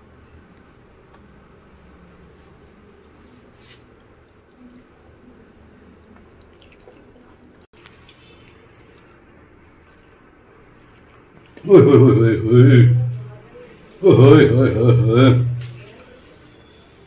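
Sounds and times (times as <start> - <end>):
food squishing mixed by hand: 0.1 - 17.0
quiet chewing: 4.0 - 11.7.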